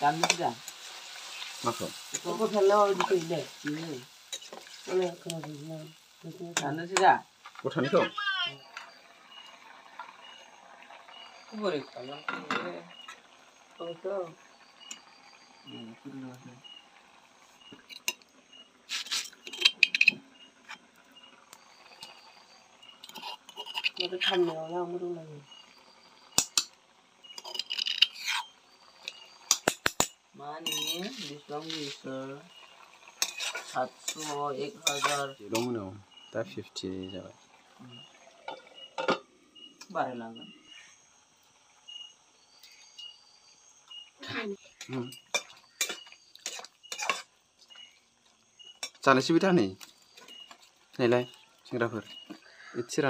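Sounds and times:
curry sizzling: 0.0s - 53.0s
high insect trill: 0.0s - 53.0s
insects chirping: 0.0s - 53.0s
spatula scraping metal pan: 0.2s - 5.2s, 18.9s - 20.9s, 22.9s - 24.7s, 27.3s - 29.7s, 30.6s - 32.1s, 33.1s - 35.8s, 45.2s - 47.3s.

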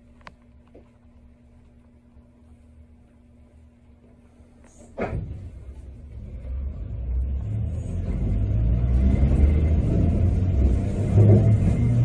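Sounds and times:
streetcar rumbling on rails: 5.0s - 12.0s.

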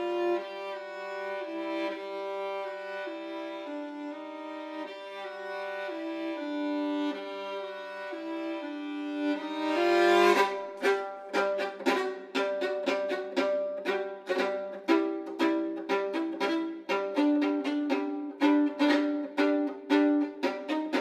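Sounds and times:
bowed string music: 0.0s - 21.0s.

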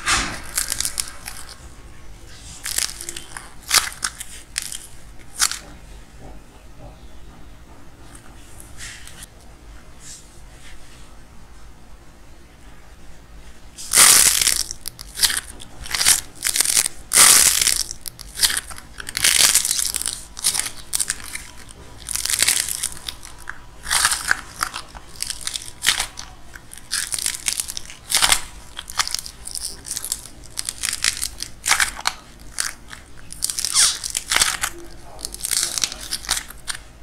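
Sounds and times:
dried clay cracking and crunching: 0.0s - 1.7s, 2.3s - 5.8s, 13.8s - 37.0s.

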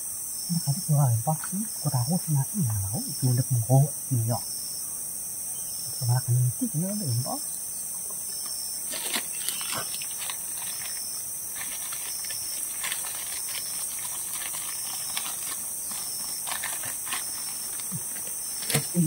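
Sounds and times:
steady high-pitched hiss: 0.0s - 19.0s
footsteps on forest trail: 8.4s - 18.9s.

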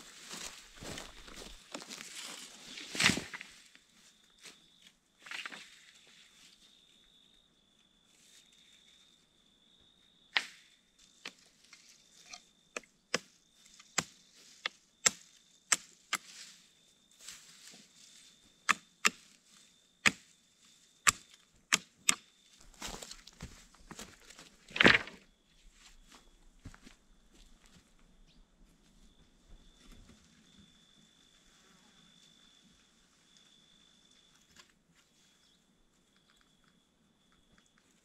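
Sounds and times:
branches rustling: 0.0s - 3.8s
blade chopping saplings: 12.8s - 16.4s, 18.6s - 19.2s, 20.0s - 20.2s, 21.0s - 22.9s.

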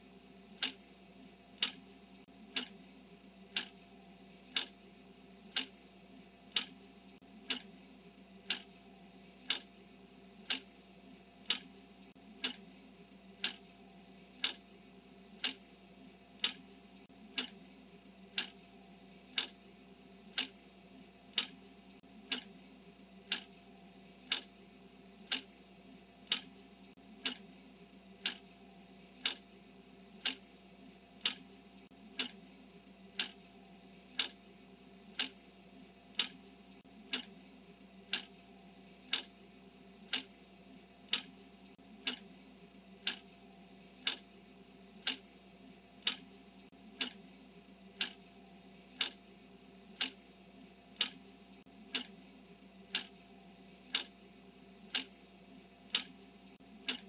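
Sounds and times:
faint steady hum: 0.0s - 57.0s
clock ticking: 0.5s - 0.9s, 1.6s - 2.8s, 3.5s - 3.8s, 4.5s - 4.8s, 5.5s - 5.8s, 6.5s - 7.8s, 8.4s - 8.8s, 9.4s - 9.7s, 10.4s - 10.8s, 11.4s - 12.7s, 13.4s - 13.8s, 14.4s - 14.7s, 15.4s - 15.8s, 16.4s - 17.7s, 18.3s - 19.6s, 20.3s - 20.6s, 21.3s - 22.6s, 23.2s - 23.6s, 24.2s - 24.6s, 25.2s - 25.6s, 26.2s - 26.6s, 27.2s - 27.5s, 28.2s - 28.5s, 29.2s - 29.5s, 30.2s - 30.6s, 31.2s - 32.4s, 33.1s - 34.4s, 35.0s - 35.5s, 36.1s - 37.4s, 38.1s - 39.4s, 40.0s - 40.4s, 41.0s - 42.3s, 43.0s - 43.3s, 44.0s - 44.3s, 45.0s - 45.4s, 46.0s - 47.3s, 47.9s - 49.2s, 49.9s - 52.2s, 52.9s - 53.2s, 53.8s - 54.2s, 54.8s - 55.2s, 55.9s - 57.0s.

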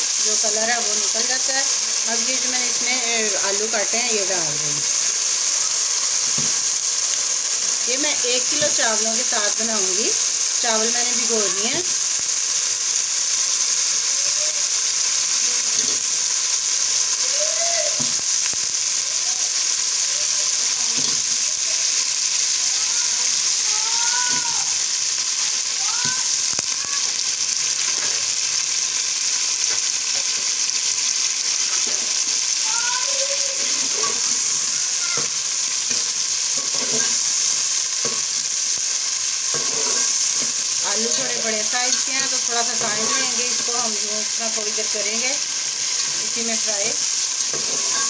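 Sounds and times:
food sizzling in hot oil: 0.0s - 48.0s
metal spatula stirring pot: 35.9s - 37.3s, 39.5s - 40.5s.

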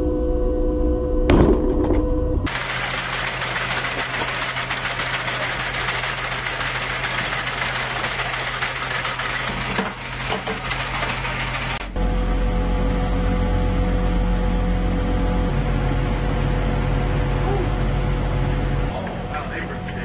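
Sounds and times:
low motor hum: 0.0s - 20.0s
automatic cannon firing clatter: 1.3s - 11.9s.

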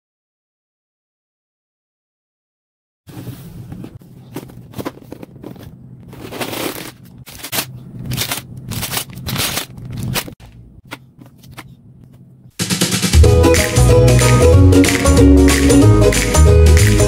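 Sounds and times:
low steady hum: 3.1s - 12.6s
plastic bags crinkling: 4.2s - 10.4s.

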